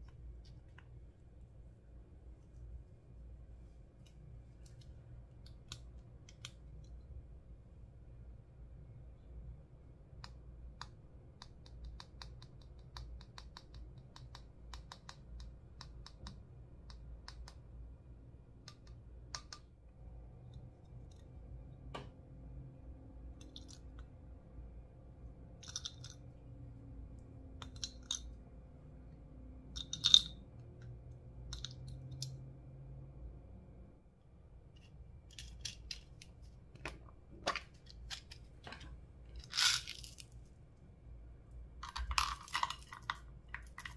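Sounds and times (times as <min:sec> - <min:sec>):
faint low hum: 0:00.0 - 0:43.9.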